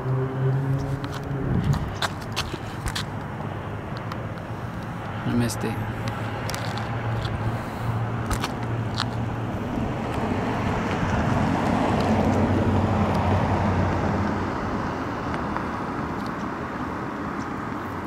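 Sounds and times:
low hum: 0.0s - 5.2s
vehicle passing by: 0.0s - 18.0s
wind on microphone: 0.7s - 2.6s.

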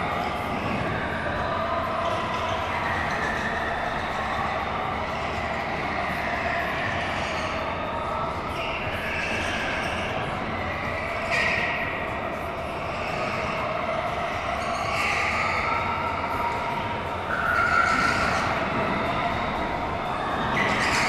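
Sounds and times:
high-pitched tyre squeals: 17.3s - 19.3s.

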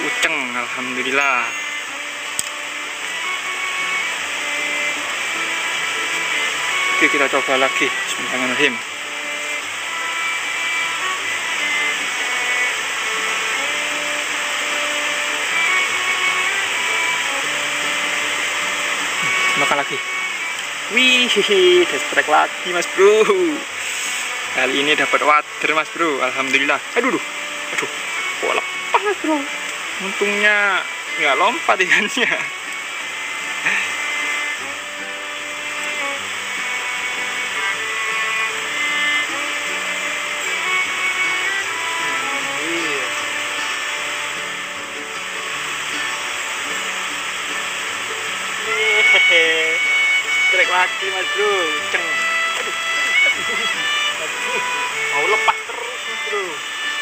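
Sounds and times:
background music of held notes: 0.0s - 57.0s
flowing river water: 0.0s - 57.0s.

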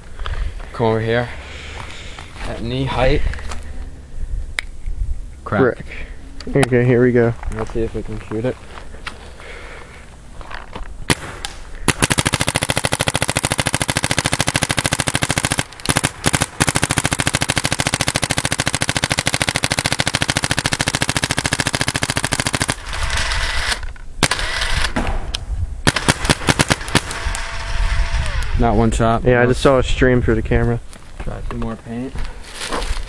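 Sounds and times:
paintball marker firing: 11.1s - 28.5s.

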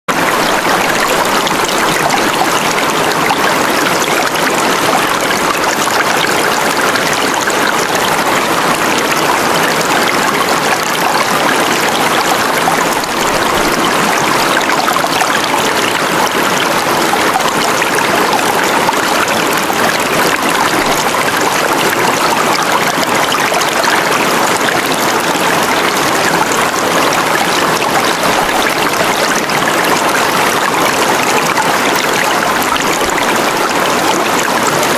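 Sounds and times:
flowing stream water: 0.1s - 34.9s.

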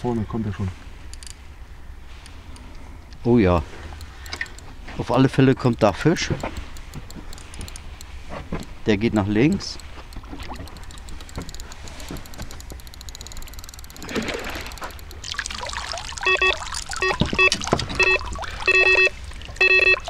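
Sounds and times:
water trickling and splashing: 10.2s - 12.1s, 13.9s - 20.0s
electronic alarm beeps: 16.1s - 20.0s.

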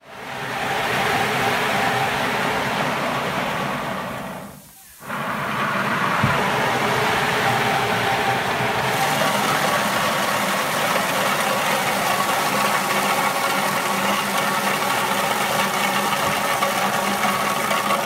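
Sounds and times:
motor hum: 0.0s - 18.0s
wet walnuts churning in a drum: 5.0s - 18.0s.

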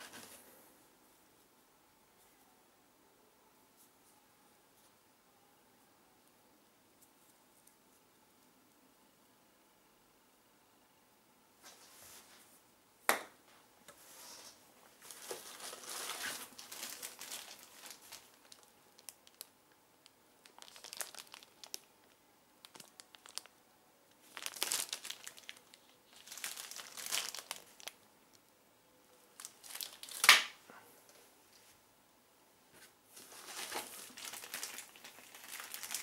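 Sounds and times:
plastic packaging crinkling: 15.0s - 19.5s, 20.4s - 23.6s, 24.2s - 28.0s, 29.4s - 30.5s, 33.2s - 36.0s.

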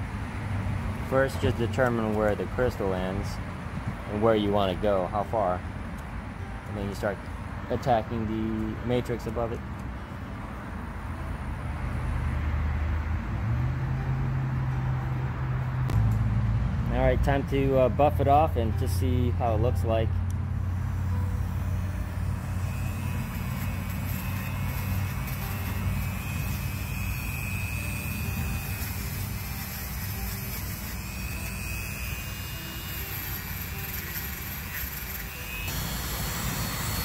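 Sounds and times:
rotary tool wire brush scrubbing: 22.4s - 35.7s.

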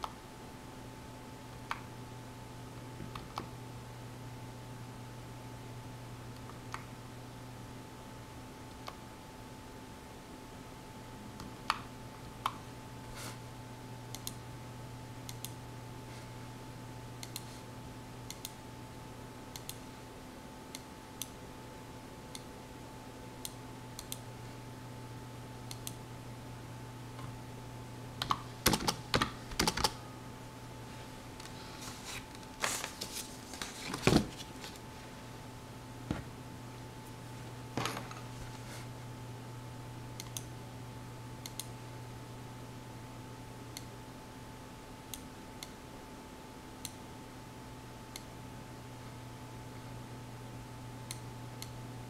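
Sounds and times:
steady low hum: 0.0s - 52.0s
computer keyboard typing: 28.2s - 30.0s.

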